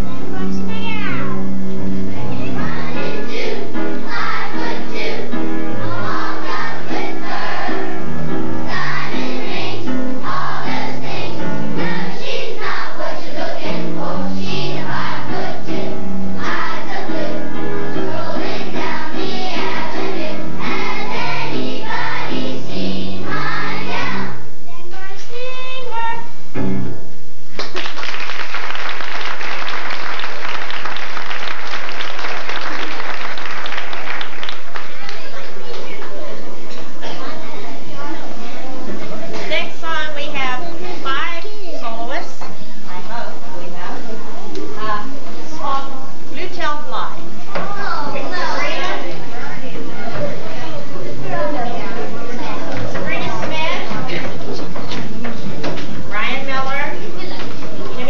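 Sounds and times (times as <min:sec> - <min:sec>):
children's choir singing: 0:01.8 - 0:25.5, 0:47.4 - 0:58.0
audience applause: 0:27.5 - 0:35.7.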